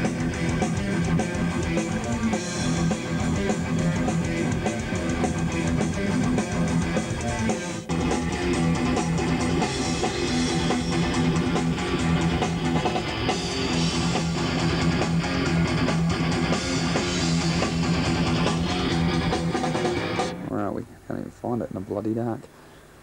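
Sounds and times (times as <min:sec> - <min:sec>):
heavy metal band playing: 0:00.0 - 0:20.5.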